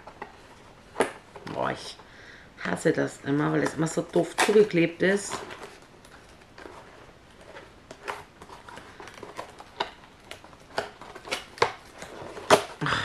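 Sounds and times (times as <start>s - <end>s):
packaging being opened by hand: 3.8s - 12.9s.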